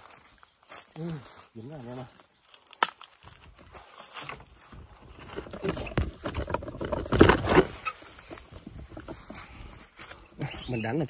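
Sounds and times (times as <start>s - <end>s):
dry leaves and bamboo rustling: 0.0s - 11.0s
bamboo snapping: 2.4s - 4.4s.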